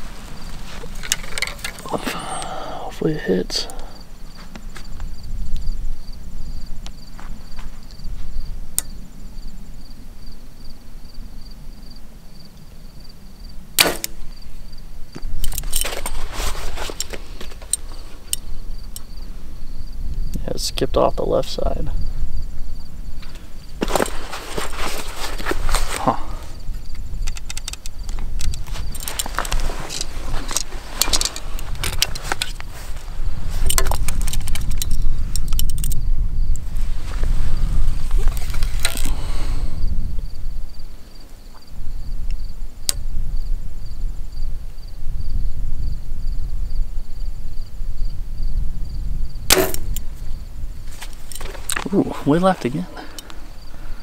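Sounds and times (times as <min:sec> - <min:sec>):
footsteps on crunchy ground: 0:00.0 - 0:02.3, 0:04.3 - 0:05.1, 0:06.9 - 0:08.4, 0:15.1 - 0:18.3, 0:23.2 - 0:26.6, 0:28.2 - 0:34.2, 0:36.7 - 0:39.4, 0:50.8 - 0:53.9
archery gear rattling: 0:00.0 - 0:02.7, 0:15.4 - 0:18.5, 0:23.8 - 0:26.6, 0:27.2 - 0:33.0, 0:33.6 - 0:36.0, 0:38.1 - 0:39.3, 0:50.9 - 0:53.3
wind buffeting microphone: 0:03.9 - 0:10.4, 0:21.6 - 0:54.0
bow string snap: 0:13.8 - 0:14.2, 0:49.5 - 0:50.1.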